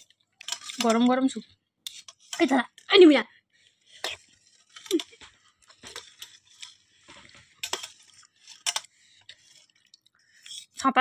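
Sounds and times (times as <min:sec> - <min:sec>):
metal spoons clinking on steel plate: 0:00.0 - 0:01.2, 0:01.9 - 0:02.9, 0:03.9 - 0:09.7.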